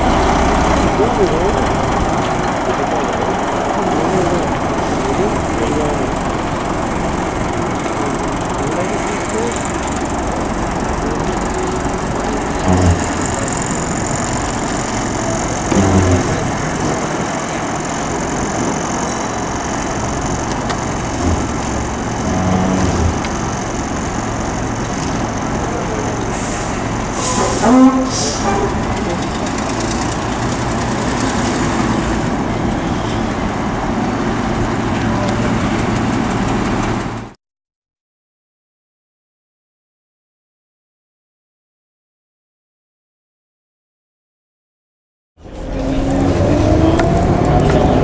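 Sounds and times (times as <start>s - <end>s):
low bumps: 0.0s - 32.7s
bus engine and road noise: 0.0s - 37.4s, 45.4s - 48.0s.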